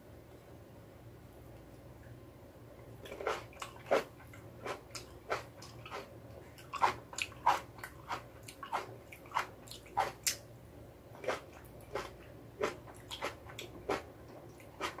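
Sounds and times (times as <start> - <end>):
person chewing with mouth clicks: 3.0 - 10.4, 11.2 - 15.0.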